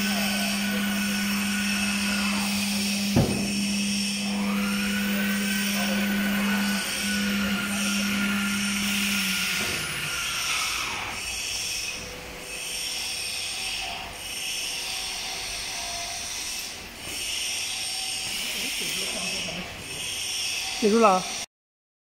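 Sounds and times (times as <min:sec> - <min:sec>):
drive motors whining: 0:00.0 - 0:14.8
router spindle steady tone: 0:00.0 - 0:16.8.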